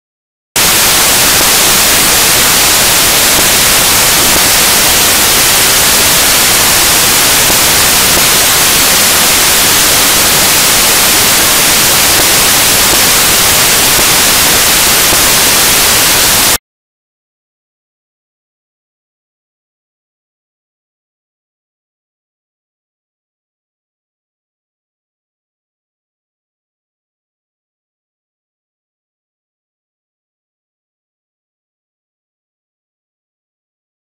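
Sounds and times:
loud static hiss: 0:00.6 - 0:16.6.

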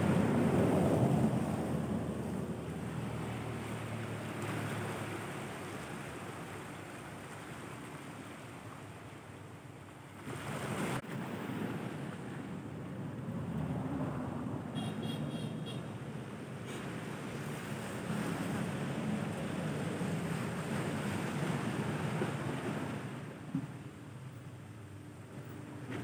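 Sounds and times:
wind on microphone: 0:00.0 - 0:05.0
waves breaking against rocks: 0:00.0 - 0:14.4, 0:16.1 - 0:26.0.

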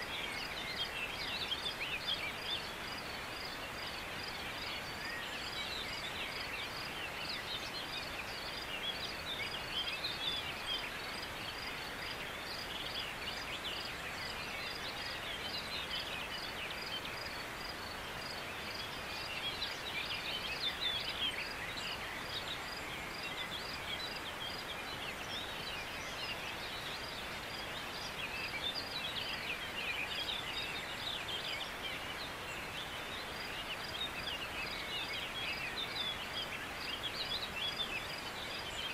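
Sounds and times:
birds singing: 0:00.0 - 0:38.9.

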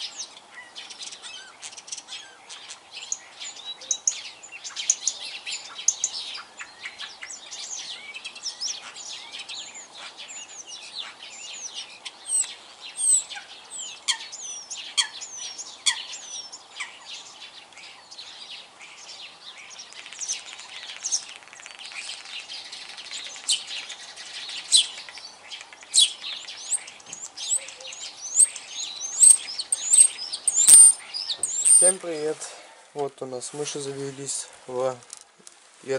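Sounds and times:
starling singing: 0:19.7 - 0:32.2.

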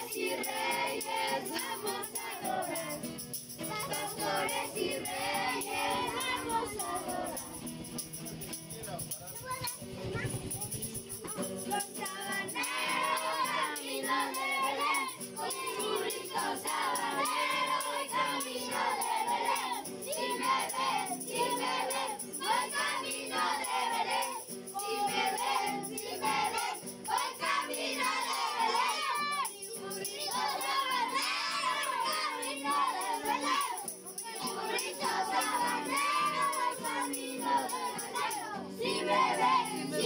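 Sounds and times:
children singing a carol: 0:00.0 - 0:08.3, 0:11.6 - 0:40.0.

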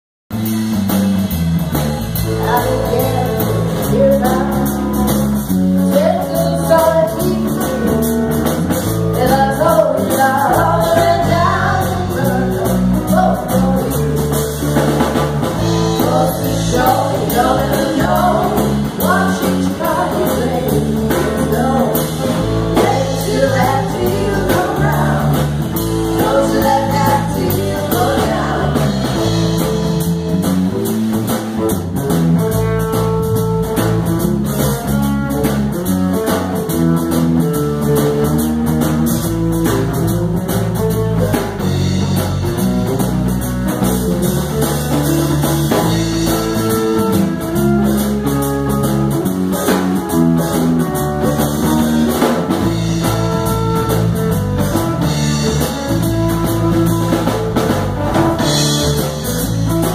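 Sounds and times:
drum kit: 0:00.3 - 0:59.9
guitar: 0:00.3 - 0:59.9
women singing: 0:02.4 - 0:04.8, 0:05.8 - 0:07.8, 0:09.2 - 0:14.2, 0:15.6 - 0:29.3.

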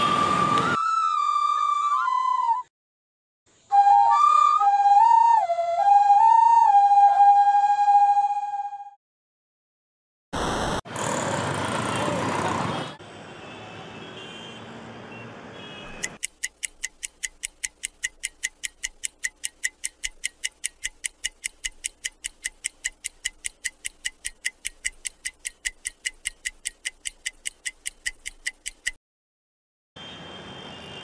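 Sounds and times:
clock ticking fast: 0:15.9 - 0:29.0.

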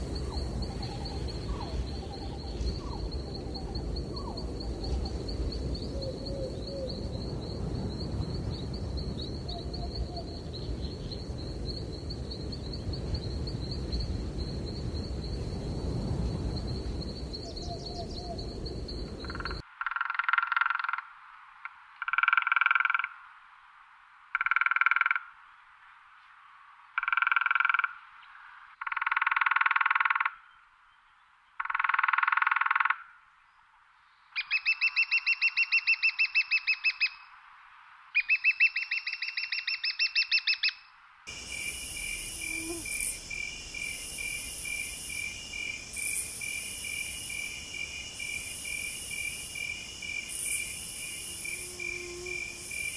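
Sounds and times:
insects chirping: 0:00.0 - 0:30.3, 0:34.0 - 0:52.9
animal calls: 0:42.4 - 0:43.2.

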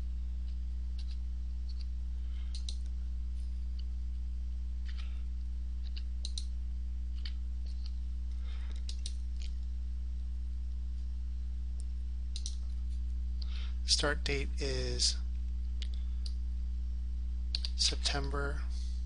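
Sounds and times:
steady low hum: 0:00.0 - 0:19.0
mouse clicks: 0:02.5 - 0:02.9, 0:05.8 - 0:06.5, 0:12.3 - 0:12.6
computer keyboard keystrokes: 0:12.4 - 0:12.6.

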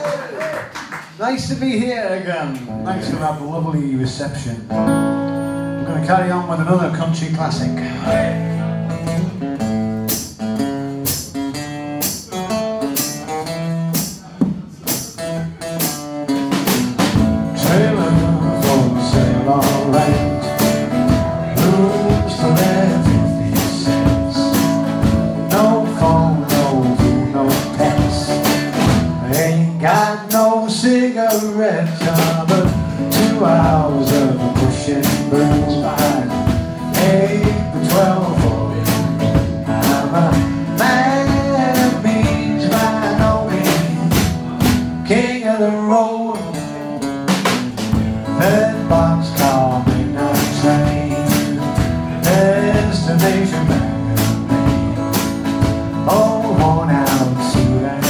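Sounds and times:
strummed acoustic guitar: 0:04.6 - 0:58.0
man singing: 0:05.8 - 0:09.1, 0:17.2 - 0:58.0
drum kit beat: 0:08.3 - 0:45.3, 0:47.0 - 0:58.0.

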